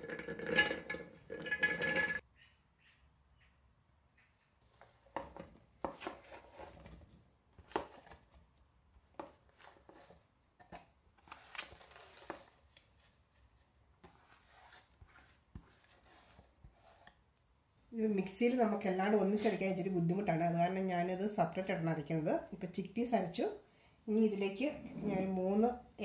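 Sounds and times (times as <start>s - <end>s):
clicks and rustles in steel jar: 0.0s - 2.2s.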